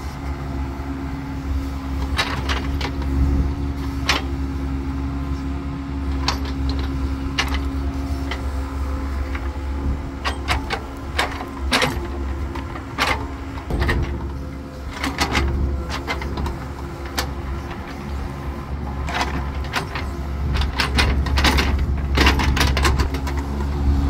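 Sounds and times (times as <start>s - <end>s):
excavator diesel engine running: 0.0s - 24.0s
bucket and boom knocks and clanks: 9.2s - 18.0s, 18.9s - 23.5s.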